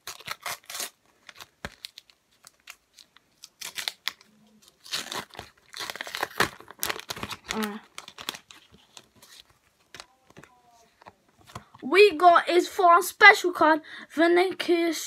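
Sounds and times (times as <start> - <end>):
wrapper crinkling and tearing: 0.0 - 10.6.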